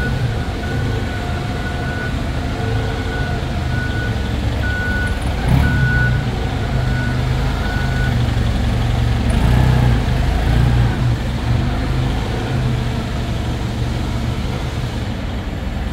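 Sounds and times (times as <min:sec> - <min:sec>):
reverse alarm beeping: 0:00.0 - 0:08.2
forklift engine running: 0:00.0 - 0:15.9.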